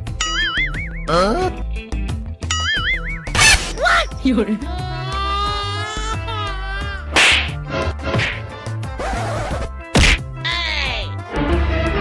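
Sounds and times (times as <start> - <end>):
background music: 0.0 - 12.0.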